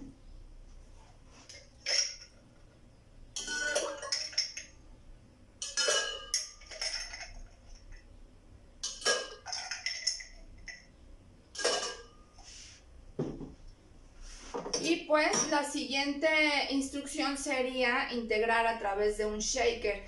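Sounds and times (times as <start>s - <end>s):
ice cubes clinking on metal spoon: 3.4s - 4.8s, 5.6s - 8.0s, 8.8s - 10.9s.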